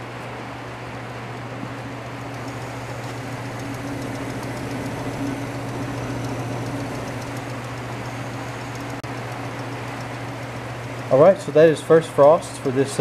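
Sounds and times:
refrigeration compressor humming: 0.0 - 13.0.

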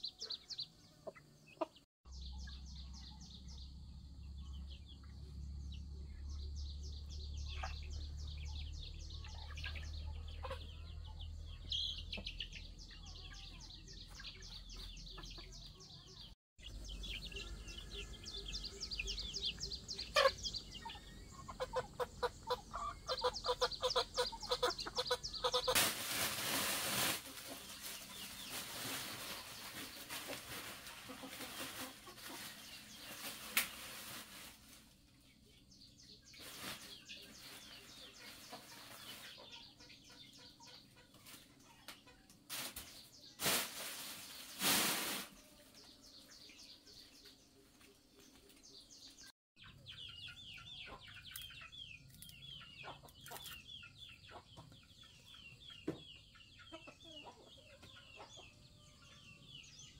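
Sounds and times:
chickens clucking: 0.0 - 3.2, 7.0 - 59.9
plastic bag rustling: 25.7 - 34.9, 42.5 - 45.4.

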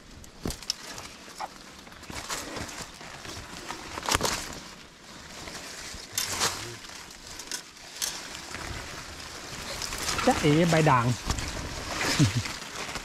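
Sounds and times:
brushing through undergrowth: 0.0 - 13.0
crackles of leaves and stems: 0.0 - 13.0
footsteps crunching through dry leaves: 0.0 - 13.0.

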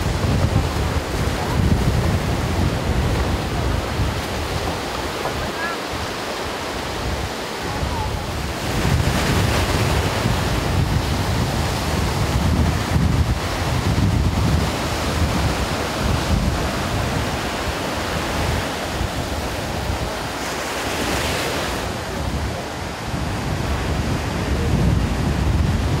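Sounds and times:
ocean surf breaking on beach: 0.0 - 26.0
wind buffeting microphone: 0.0 - 26.0.

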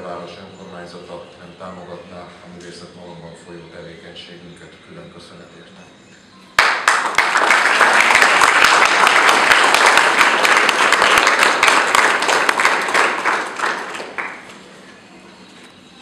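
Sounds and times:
audience applauding: 6.6 - 14.7.

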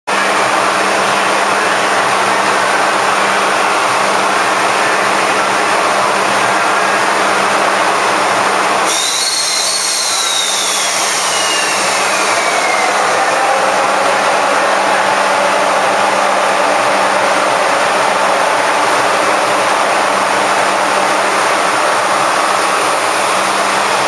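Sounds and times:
high whine falling in pitch: 0.2 - 24.0
locomotive cooling blowers rushing: 0.2 - 24.0.

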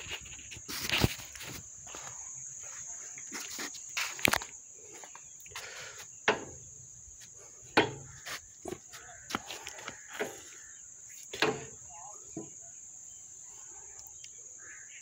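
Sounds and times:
footsteps on stone paving: 0.0 - 5.8, 8.1 - 11.4.

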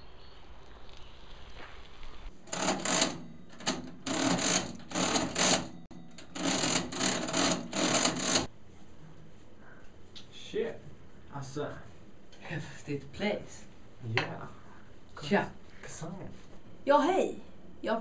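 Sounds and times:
cash register clattering: 2.4 - 8.5.

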